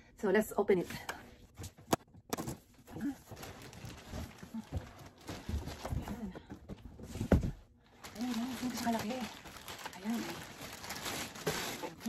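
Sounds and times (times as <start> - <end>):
cardboard scraping and knocking: 4.0 - 7.6.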